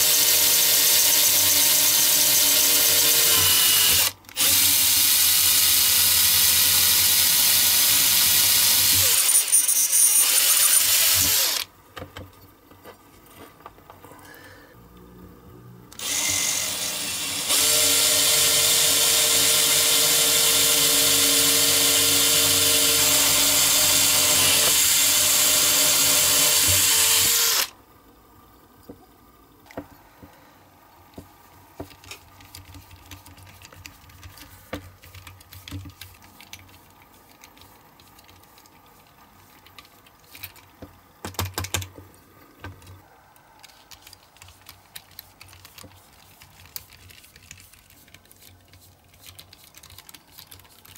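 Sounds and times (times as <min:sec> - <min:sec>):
electric drill whining: 0:00.0 - 0:11.7, 0:15.9 - 0:27.7.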